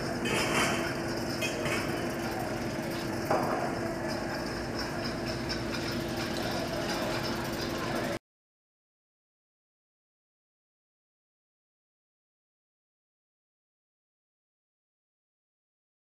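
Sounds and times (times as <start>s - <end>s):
airport terminal hum: 0.0s - 8.2s.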